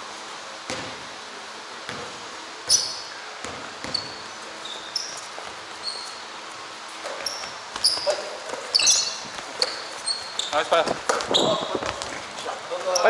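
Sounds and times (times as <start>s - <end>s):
basketball thuds: 0.6s - 1.1s, 1.8s - 4.3s
sneakers squeaking on wooden floor: 1.9s - 6.4s, 7.0s - 13.0s
footsteps: 6.9s - 13.0s.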